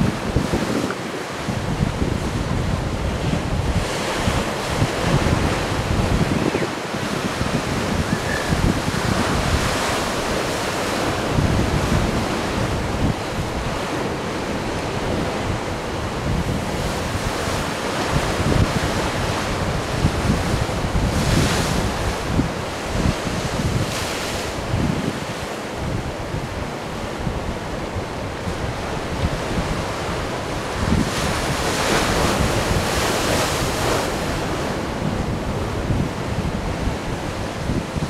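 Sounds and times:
ocean waves washing in: 0.0 - 38.0
wind rumbling on microphone: 0.0 - 38.0.

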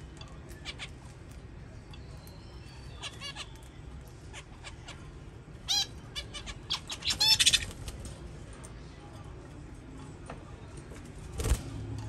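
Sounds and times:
budgerigars chirping: 5.7 - 7.7.

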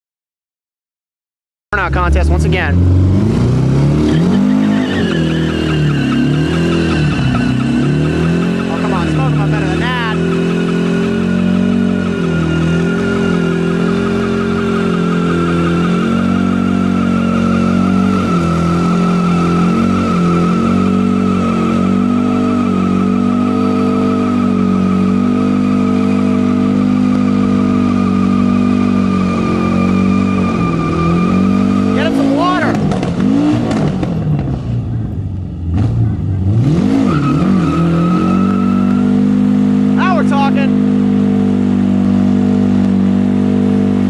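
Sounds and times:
car engine at high revs: 1.8 - 44.0
tyres squealing: 4.0 - 32.9, 36.9 - 39.3.

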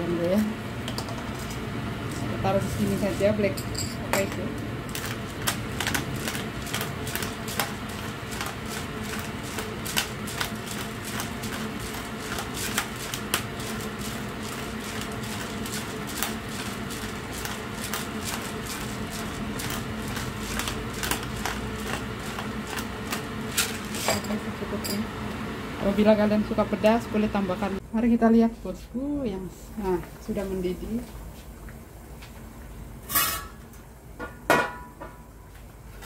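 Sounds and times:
pepper mill grinding: 3.8 - 25.0.

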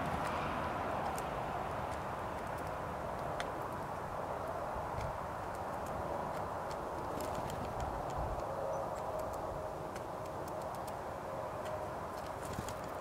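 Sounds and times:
outdoor background noise: 0.0 - 13.0
light ticks and clicks: 4.9 - 11.0.

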